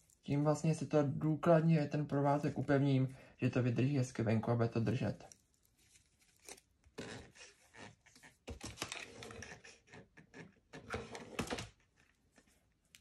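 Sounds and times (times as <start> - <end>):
twine rustling and scratching: 4.8 - 9.8.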